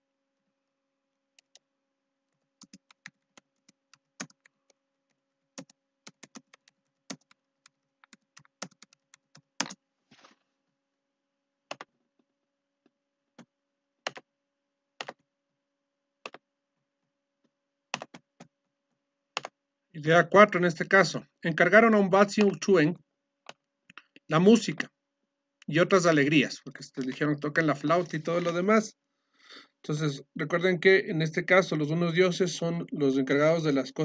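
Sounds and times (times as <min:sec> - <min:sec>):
faint electrical hum: 0:00.0 - 0:34.0
typing on computer keyboard: 0:02.3 - 0:09.8, 0:11.7 - 0:11.9, 0:13.4 - 0:14.3, 0:15.0 - 0:15.2, 0:16.2 - 0:16.4, 0:17.9 - 0:18.5, 0:19.4 - 0:19.6.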